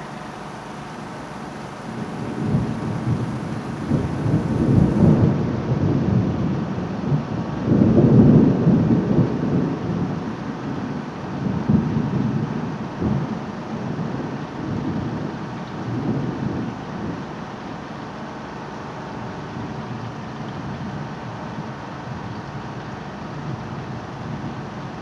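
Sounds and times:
thunder rolling: 0:00.0 - 0:06.4
steady rain: 0:00.0 - 0:25.0.

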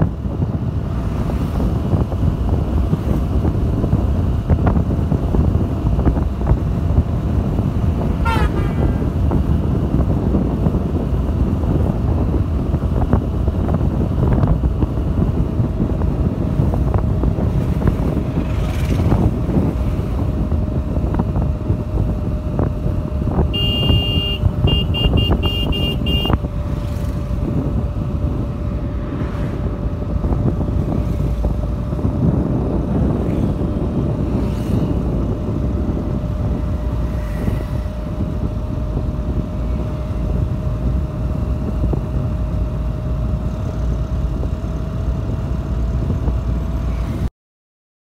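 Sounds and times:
motorcycle engine humming: 0:00.0 - 0:47.0
road noise: 0:00.0 - 0:47.3
wind buffeting: 0:00.0 - 0:47.3
short horn beeps: 0:08.2 - 0:08.8, 0:23.5 - 0:26.4.

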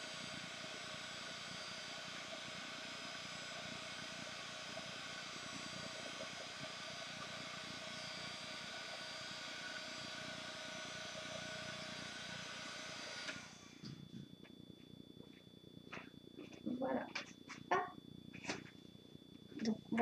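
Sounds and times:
heat gun fan blowing with whine: 0:00.0 - 0:14.3.

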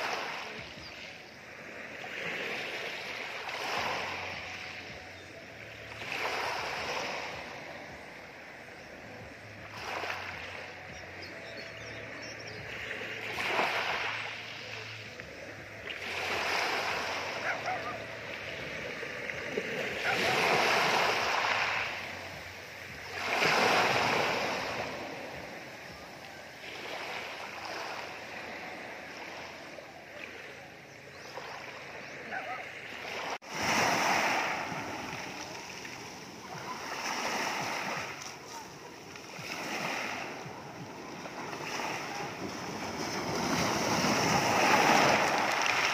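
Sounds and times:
waves breaking on pebbles: 0:13.1 - 0:25.8, 0:33.2 - 0:45.9.

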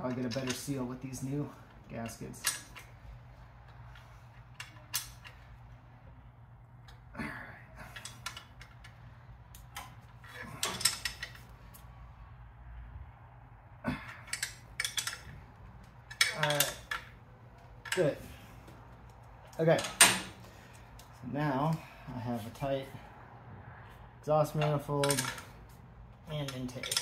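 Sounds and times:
steady low hum: 0:00.0 - 0:27.0
wrench clinking on metal nuts: 0:14.2 - 0:15.4, 0:16.1 - 0:17.1, 0:24.6 - 0:25.5, 0:26.3 - 0:27.0.

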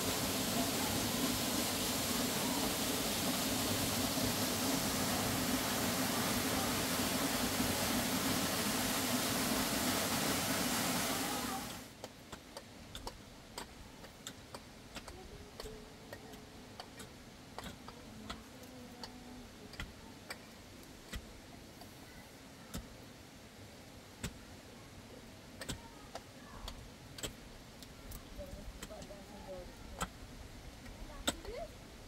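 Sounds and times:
steady rushing noise: 0:00.0 - 0:11.9.

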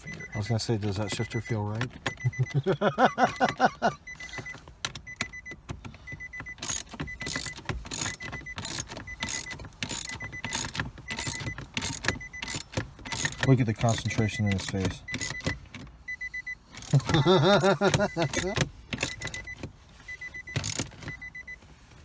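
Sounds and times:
ratchet wrench clicking: 0:06.6 - 0:15.5, 0:16.8 - 0:17.1, 0:18.3 - 0:19.5, 0:20.5 - 0:20.9.

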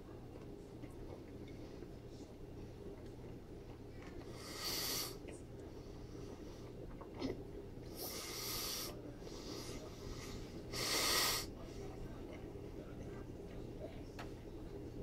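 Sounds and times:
person breathing hard through nose: 0:08.0 - 0:11.5.

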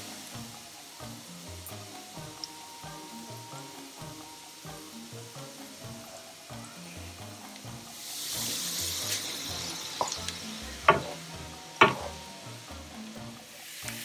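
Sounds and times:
background music with bass line: 0:00.0 - 0:14.0
onion sizzling in frying pan: 0:00.0 - 0:14.0
spoon knocking against pan: 0:10.8 - 0:11.2, 0:11.8 - 0:12.2.

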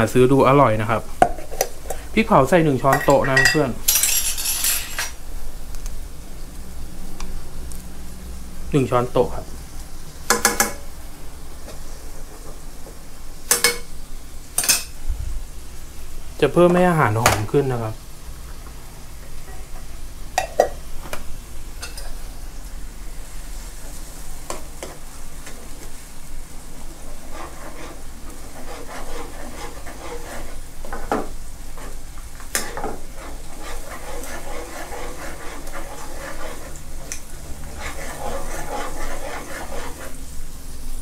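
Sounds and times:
sauce sizzling: 0:00.0 - 0:41.0
metal spoon scraping a pan: 0:02.8 - 0:05.2, 0:26.7 - 0:40.3
spoon knocking against a pan: 0:10.3 - 0:10.8.

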